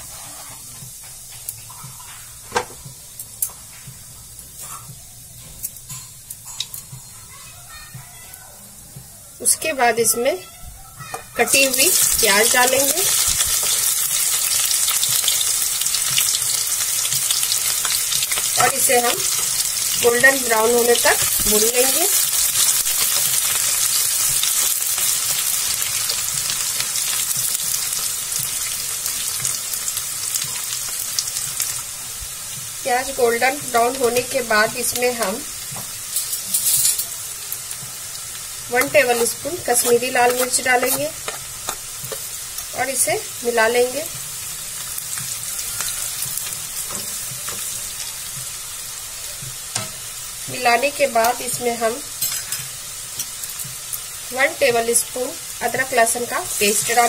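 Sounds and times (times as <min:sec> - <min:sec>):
onion sizzling in hot oil: 0:00.0 - 0:08.4, 0:09.0 - 0:57.0
spatula stirring: 0:38.8 - 0:42.3.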